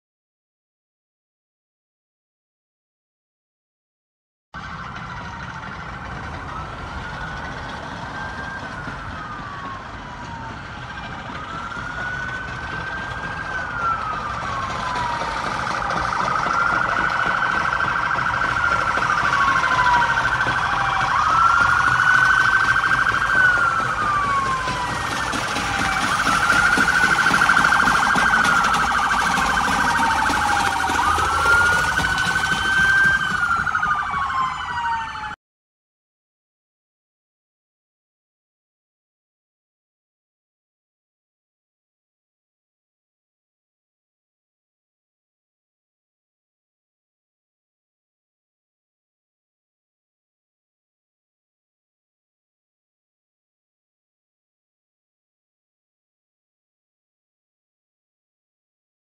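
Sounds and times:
emergency siren wailing: 4.6s - 35.4s.

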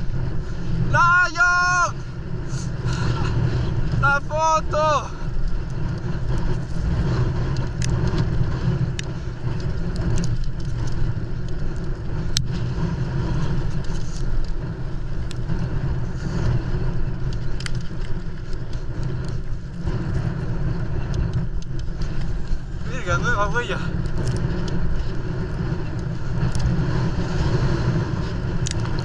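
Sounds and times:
low wind rumble on microphone: 0.0s - 29.0s
tyre and frame noise: 0.0s - 29.0s
bike clicks and knocks over rocks: 5.3s - 15.7s, 16.4s - 22.7s.

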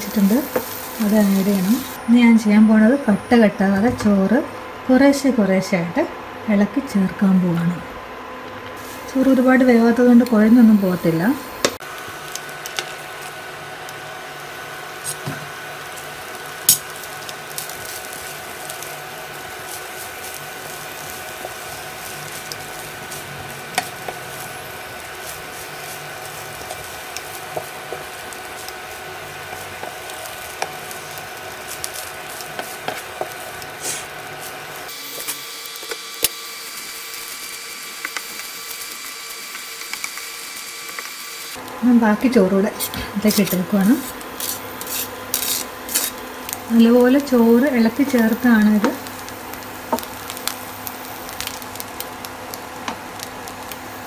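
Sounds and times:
wooden spatula stirring rice in pan: 25.1s - 34.7s.

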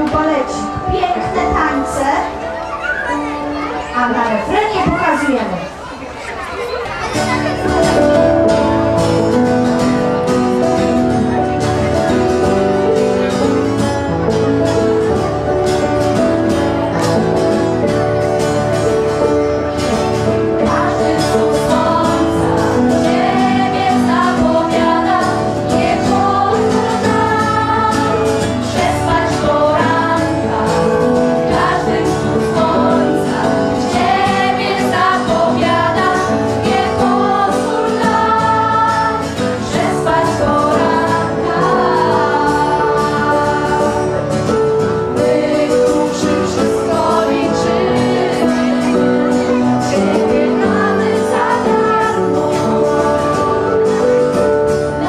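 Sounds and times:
amplified instrumental accompaniment: 7.2s - 55.0s
girls singing into microphones: 20.5s - 49.0s, 49.8s - 54.2s.

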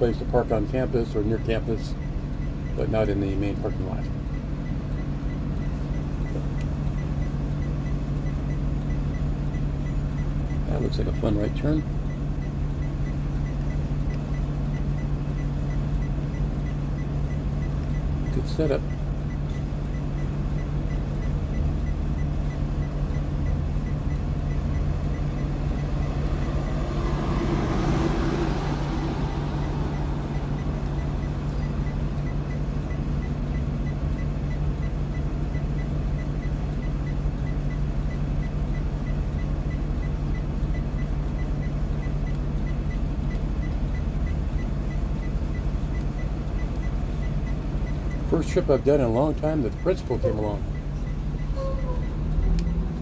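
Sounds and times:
diesel engine idling: 0.0s - 53.0s
light regular tick: 4.2s - 10.3s, 12.0s - 18.0s, 30.3s - 48.2s, 52.0s - 53.0s
passing traffic rush: 22.6s - 33.5s.

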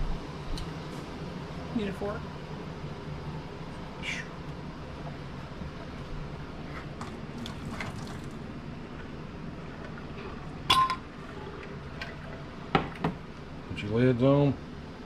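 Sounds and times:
metal lids clinking: 10.7s - 11.0s.

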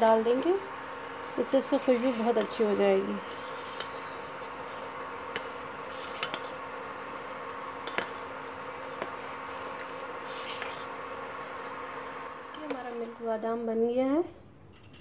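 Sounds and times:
steady low hum: 0.0s - 14.6s
spoon stirring milk in pot: 2.0s - 6.7s, 7.7s - 11.0s.

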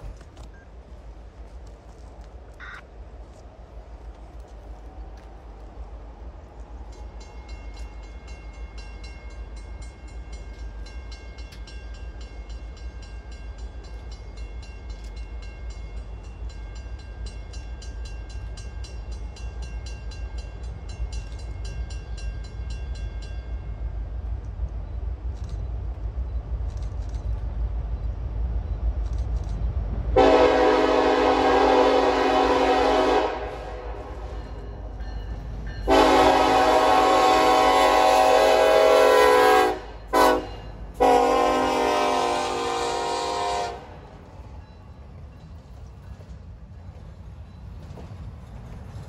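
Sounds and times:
diesel locomotive rumble: 0.0s - 49.0s
multi-note air horn blast: 30.2s - 34.4s, 35.9s - 44.0s.

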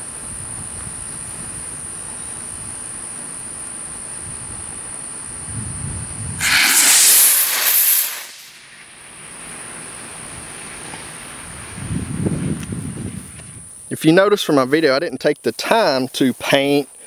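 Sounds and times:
wind buffeting microphone: 5.3s - 8.1s, 11.4s - 13.8s
rocket motor hissing: 6.4s - 8.9s.

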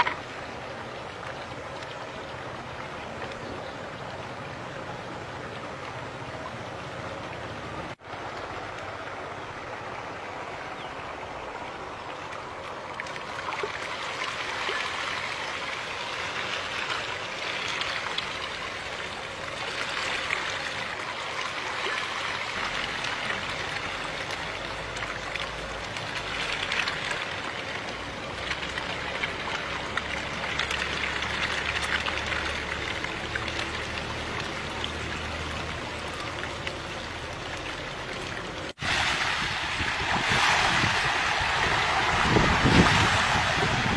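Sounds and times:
fish thrashing and splashing water: 13.0s - 43.9s.

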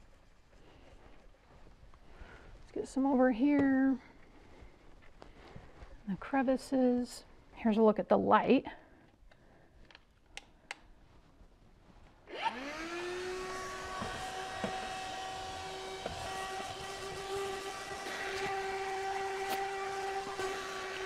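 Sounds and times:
handheld vacuum motor whine: 12.3s - 21.0s.

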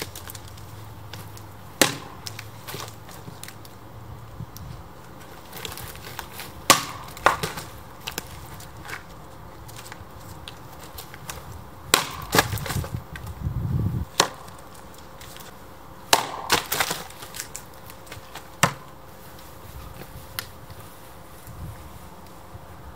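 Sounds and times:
logs landing on wood: 0.0s - 3.6s, 5.6s - 9.1s, 10.8s - 13.3s, 14.1s - 19.0s
wood cracking as it splits: 0.0s - 3.8s, 4.5s - 13.4s, 14.0s - 19.4s
axe chopping wood: 1.0s - 3.5s, 6.0s - 9.1s, 11.2s - 13.0s, 14.1s - 15.4s, 16.0s - 18.9s.

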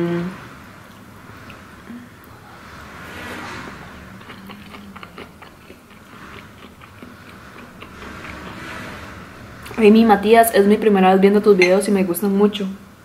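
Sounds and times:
wet chewing smacks: 4.2s - 8.5s.

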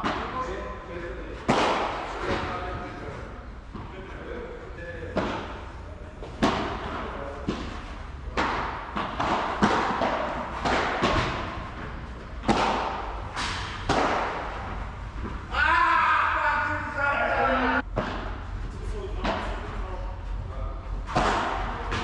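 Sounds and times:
padel ball racket hits: 8.3s - 11.6s.

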